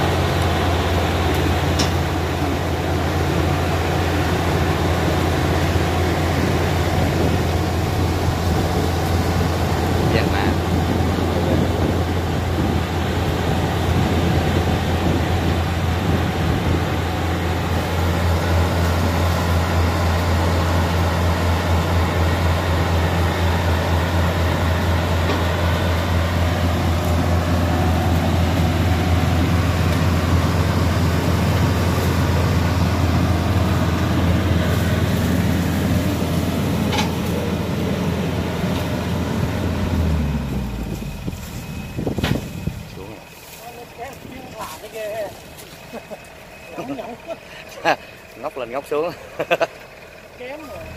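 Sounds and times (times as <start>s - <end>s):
diesel engine running: 0.0s - 50.9s.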